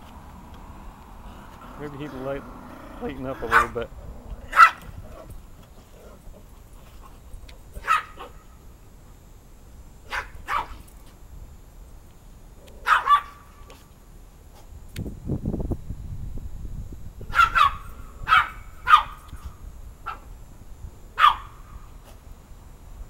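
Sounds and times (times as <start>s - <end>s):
dog barking: 3.4s - 3.8s, 4.5s - 4.9s, 7.8s - 8.4s, 10.1s - 10.8s, 12.8s - 13.4s, 17.3s - 19.2s, 21.2s - 21.6s.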